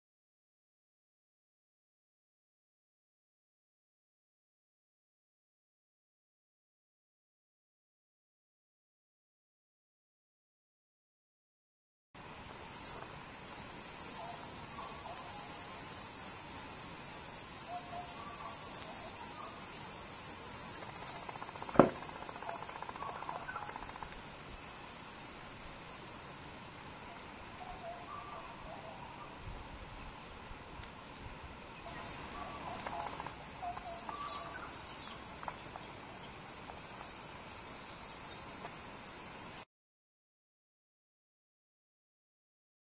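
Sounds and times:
insects trilling: 0:12.7 - 0:30.4, 0:31.6 - 0:39.6.

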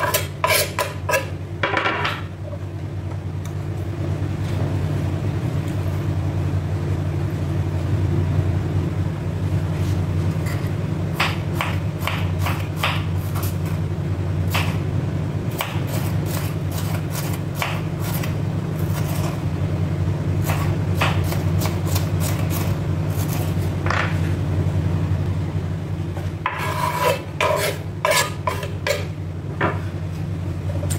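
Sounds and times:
steady low hum: 0:00.0 - 0:30.9
knife slicing on wooden board: 0:26.5 - 0:29.0.

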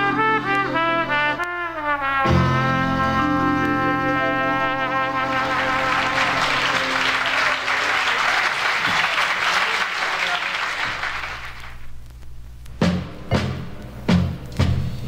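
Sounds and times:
brass band chord: 0:00.0 - 0:07.8
audience applauding: 0:04.8 - 0:11.9.

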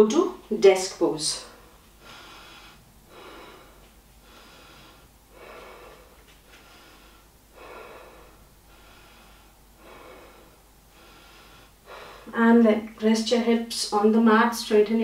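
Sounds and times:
person breathing audibly: 0:01.5 - 0:12.3.

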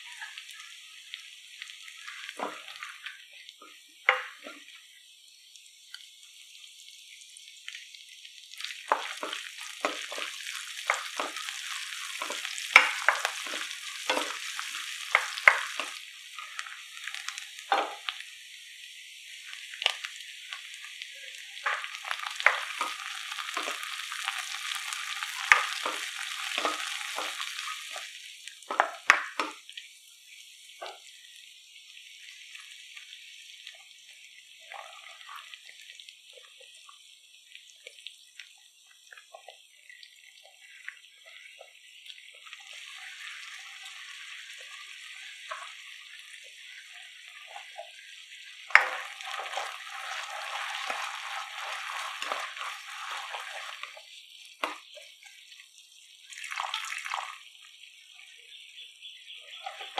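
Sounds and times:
vegetables sizzling in a wok: 0:00.0 - 0:59.9
water hissing in hot sauce: 0:00.0 - 0:59.9
spatula scraping a wok: 0:08.9 - 0:16.7, 0:21.6 - 0:28.1, 0:48.7 - 0:54.0.

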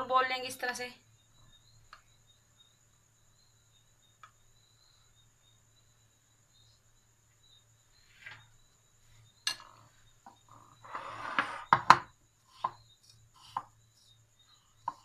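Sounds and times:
spoon and plates knocking: 0:09.5 - 0:09.8
plates scraping on stone: 0:10.7 - 0:11.9.

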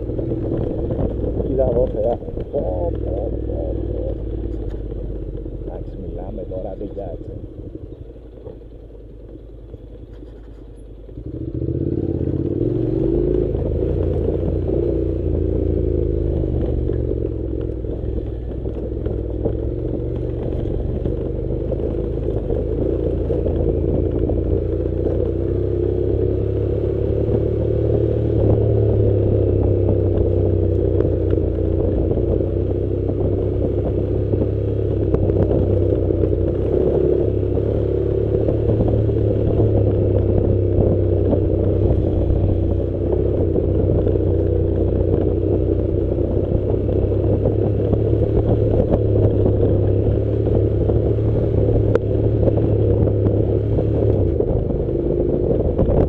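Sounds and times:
clatter and scraping on dirt track: 0:00.0 - 0:29.0
motorcycle engine running: 0:00.0 - 0:56.0.

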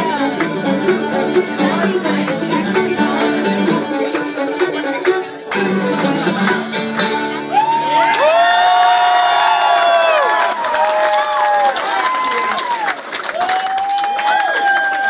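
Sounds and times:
fiddle guitar and mandolin tune: 0:00.0 - 0:08.4
audience cheering and whooping: 0:07.5 - 0:15.0.

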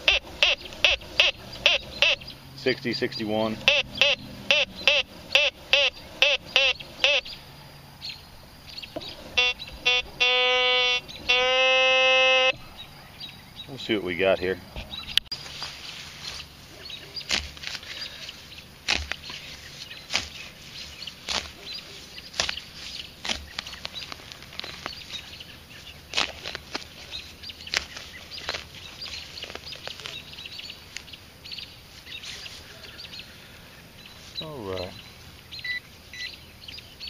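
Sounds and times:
hand digger crunching into turf: 0:14.8 - 0:30.3.

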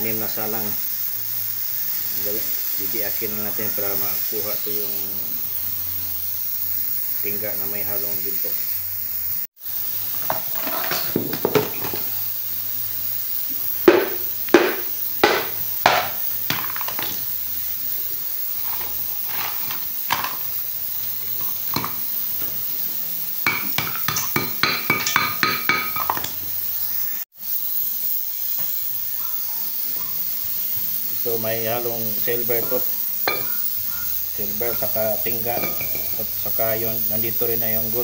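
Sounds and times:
steady hiss: 0:00.0 - 0:38.0
hammer knocking clay pot: 0:13.9 - 0:17.2, 0:23.5 - 0:26.2.

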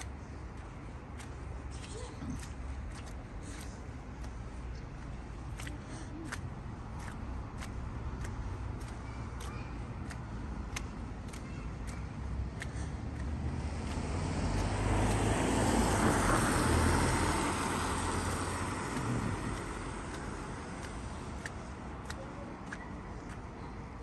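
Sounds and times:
footsteps: 0:00.0 - 0:15.3
car driving past on wet road: 0:13.2 - 0:20.6.

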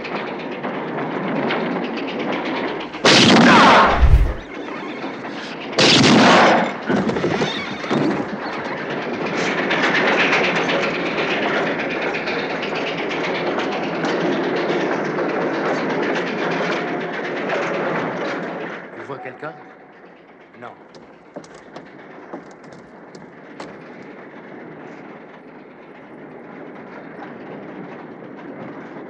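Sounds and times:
loud revolver shots: 0:03.0 - 0:04.4
low thud: 0:03.1 - 0:04.4
train clattering on rails: 0:06.7 - 0:29.0.

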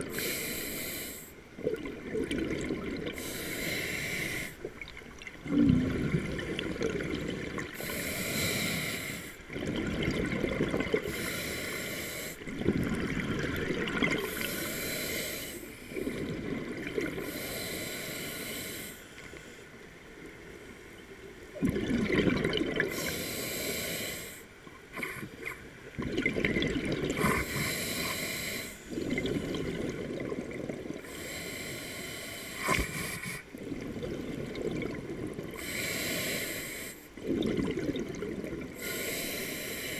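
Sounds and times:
regulator hissing inhale: 0:00.0 - 0:01.4, 0:03.2 - 0:04.6, 0:07.8 - 0:09.4, 0:11.0 - 0:12.4, 0:14.3 - 0:16.0, 0:17.2 - 0:19.8, 0:22.9 - 0:25.4, 0:27.2 - 0:29.0, 0:31.0 - 0:33.5, 0:35.6 - 0:37.1, 0:38.8 - 0:39.9
gurgling exhaled bubbles: 0:01.6 - 0:03.3, 0:04.6 - 0:08.0, 0:09.5 - 0:11.3, 0:12.4 - 0:14.6, 0:15.9 - 0:17.3, 0:21.5 - 0:23.0, 0:24.9 - 0:27.7, 0:28.9 - 0:31.1, 0:32.6 - 0:35.6, 0:37.2 - 0:39.0.

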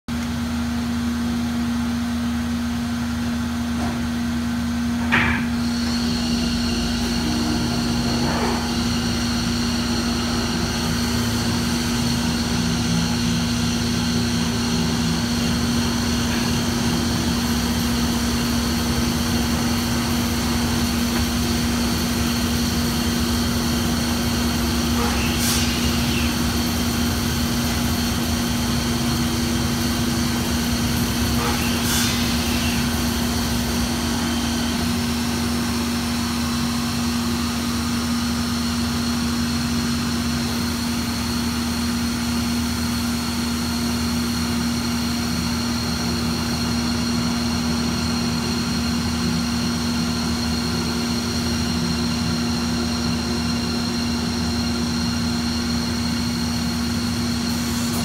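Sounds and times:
wood cutting noise: 0:05.5 - 0:38.8, 0:57.2 - 0:58.0.

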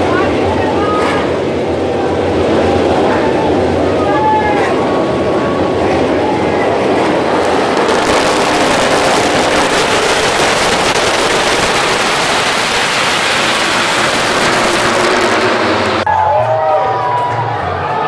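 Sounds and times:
racing motorbikes revving: 0:04.6 - 0:16.1.

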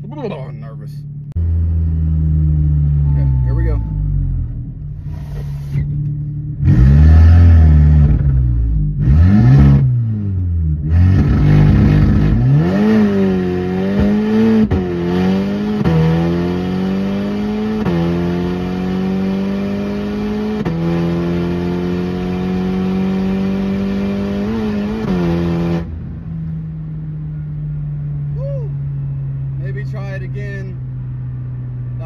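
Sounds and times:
car engine accelerating through gears: 0:01.2 - 0:26.6.

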